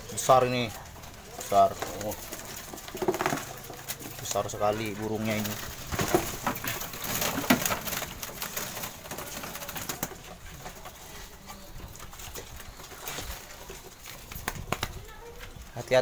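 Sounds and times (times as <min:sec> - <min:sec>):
doves cooing: 0:00.0 - 0:16.0.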